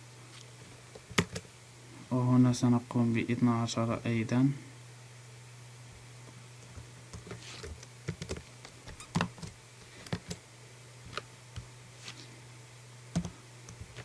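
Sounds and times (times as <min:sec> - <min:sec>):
steady low hum: 0:00.0 - 0:14.0
typing on a keyboard: 0:07.6 - 0:08.4.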